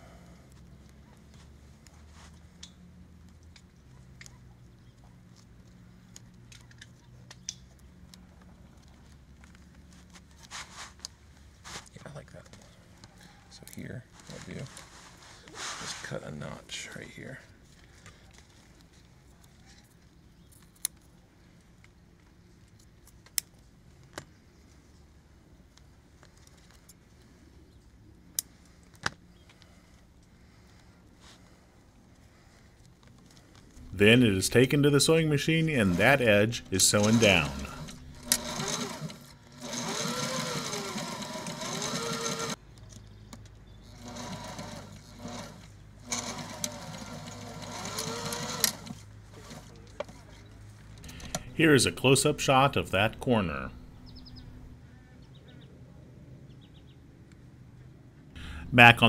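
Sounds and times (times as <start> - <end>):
faint steady background noise: 0.0 - 59.0
fabric being handled: 10.0 - 11.9, 14.1 - 16.2
sewing machine stitching: 35.8 - 42.6, 43.9 - 50.2
low hum: 51.1 - 55.0.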